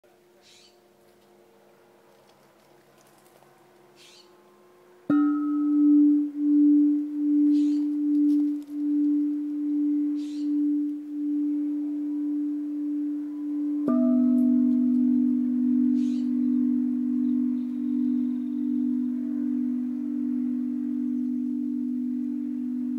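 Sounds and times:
tubular wind chimes ringing: 5.0 - 22.9.

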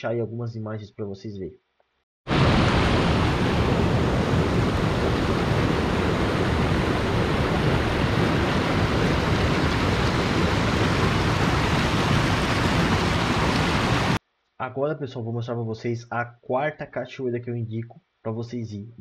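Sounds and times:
waterfall rushing: 2.3 - 14.2.

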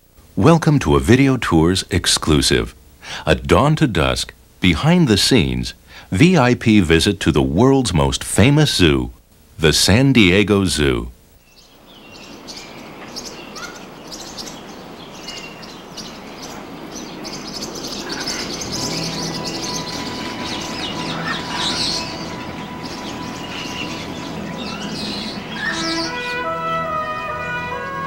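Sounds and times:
birds chirping and calling: 10.2 - 28.0
low hum: 17.8 - 28.0
steady held tone: 18.4 - 28.0.

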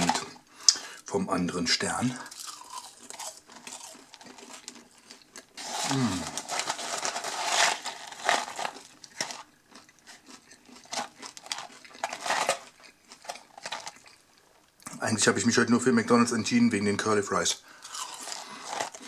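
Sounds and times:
paper carton rustling: 5.6 - 9.4, 11.0 - 12.6.

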